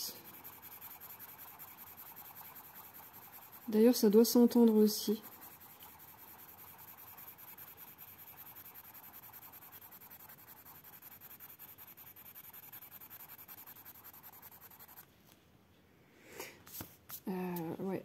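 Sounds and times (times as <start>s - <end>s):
pencil scratching on paper: 0.0s - 15.0s.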